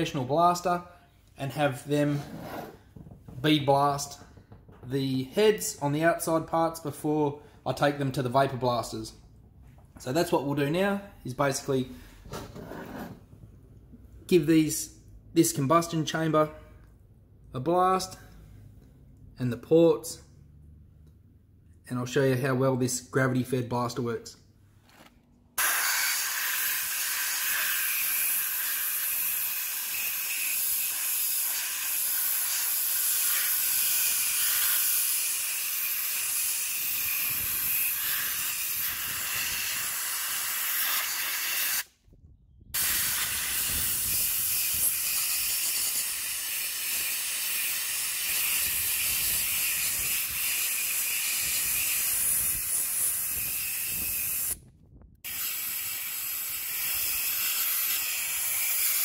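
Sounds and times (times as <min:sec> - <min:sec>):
blast gun hissing: 0:42.8 - 0:46.5.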